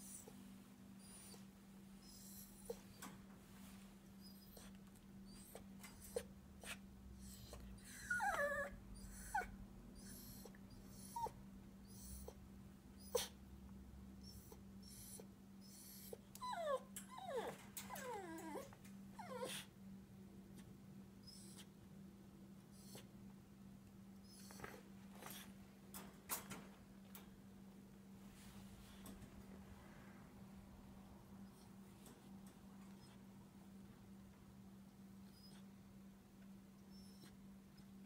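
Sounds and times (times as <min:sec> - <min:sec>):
small dog whining: 0:00.0 - 0:03.1, 0:04.2 - 0:12.4, 0:13.0 - 0:13.4, 0:14.2 - 0:19.7, 0:21.2 - 0:21.7, 0:22.7 - 0:23.1, 0:24.2 - 0:25.5, 0:35.2 - 0:35.8, 0:36.8 - 0:37.5.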